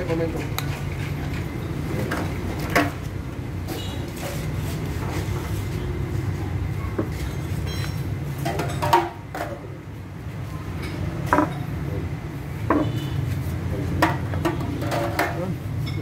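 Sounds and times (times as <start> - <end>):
bottle clinking and knocking: 7.0 - 9.6, 10.9 - 11.8.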